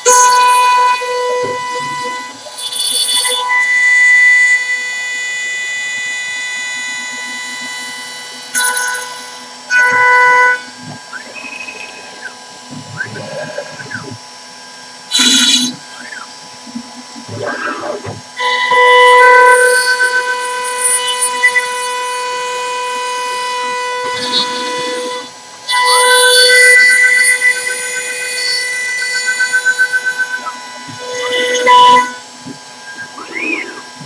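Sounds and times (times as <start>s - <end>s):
machine axes whining: 0.0s - 34.0s
router spindle whine: 0.0s - 34.0s
bit cutting into wood: 15.1s - 16.2s.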